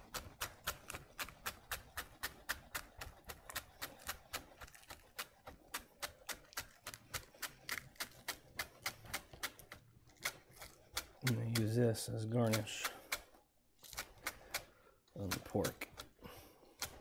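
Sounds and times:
knife chopping on wooden board: 0:00.0 - 0:11.8.

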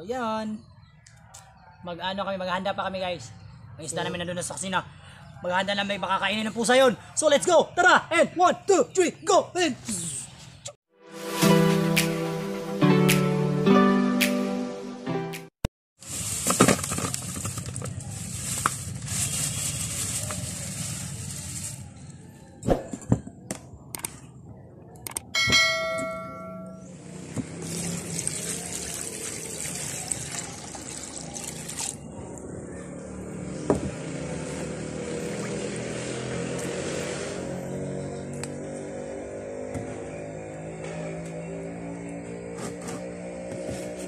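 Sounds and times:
clicks: 0:25.0 - 0:25.3
short bell-like chime: 0:25.4 - 0:26.9.

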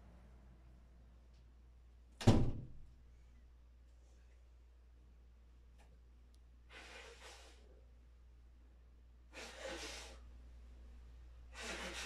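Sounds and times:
breaths close to microphone: 0:11.5 - 0:12.0.

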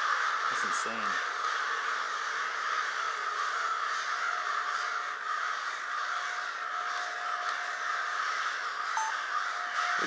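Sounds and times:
crows cawing: 0:00.0 - 0:10.0.

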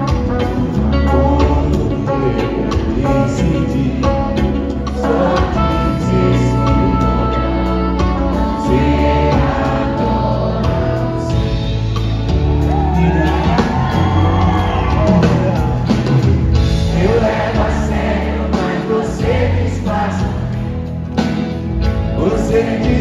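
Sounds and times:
person singing: 0:00.0 - 0:11.6, 0:12.6 - 0:20.8, 0:22.1 - 0:23.0
live band playing: 0:00.0 - 0:23.0
crowd whooping: 0:12.2 - 0:17.1.

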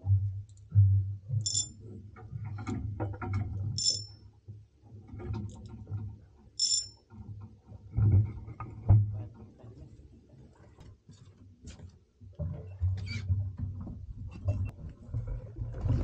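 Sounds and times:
short high-pitched beep: 0:01.5 - 0:01.7, 0:06.6 - 0:06.9.

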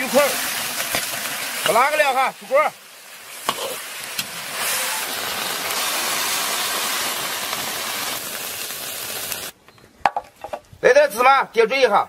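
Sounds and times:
fish sizzling in a wok: 0:00.0 - 0:09.6.

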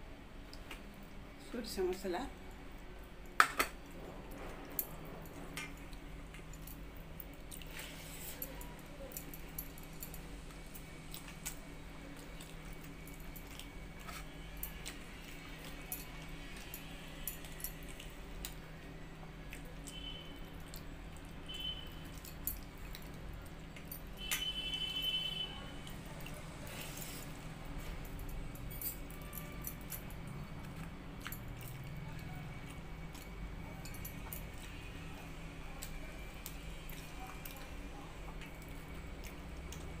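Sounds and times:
bangles clinking and jingling: 0:03.3 - 0:40.0.

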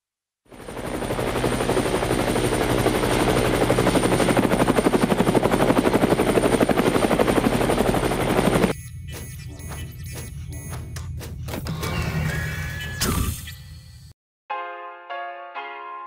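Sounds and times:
helicopter rotor chopping: 0:00.5 - 0:08.8.

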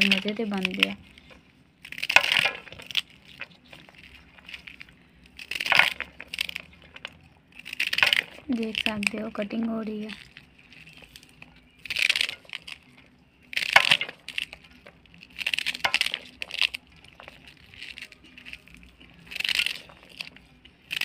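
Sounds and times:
knife cutting crisp seed pods: 0:00.0 - 0:21.0
pieces dropping into metal bowl: 0:01.9 - 0:03.8, 0:05.5 - 0:09.2, 0:13.5 - 0:14.6, 0:15.3 - 0:18.6.

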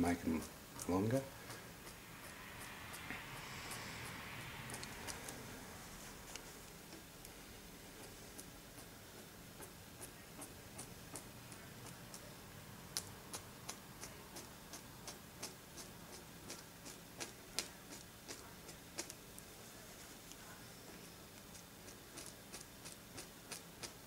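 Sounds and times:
toothpick clicking on plastic: 0:04.7 - 0:05.3.

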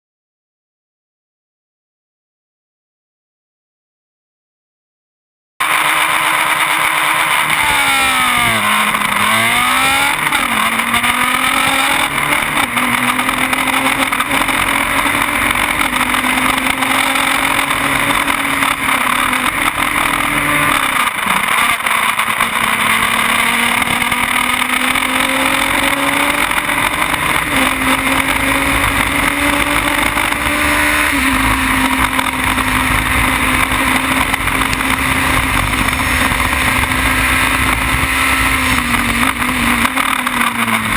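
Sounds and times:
racing car engine revving: 0:05.6 - 0:40.9
wind rushing over microphone: 0:25.6 - 0:40.9.

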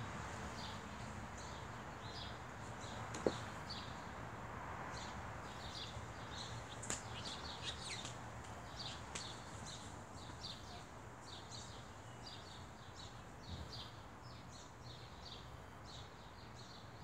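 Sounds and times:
small birds chirping: 0:04.9 - 0:17.0.

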